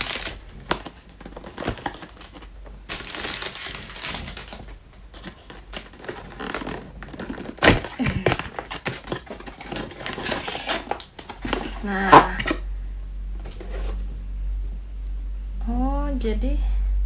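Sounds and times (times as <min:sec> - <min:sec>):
cardboard packaging rustling: 0:00.0 - 0:12.6, 0:13.4 - 0:14.1.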